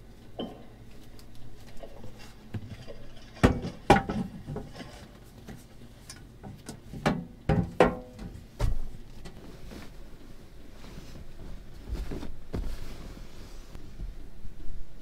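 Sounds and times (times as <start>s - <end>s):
board panels knocking and thudding: 7.0s - 9.0s.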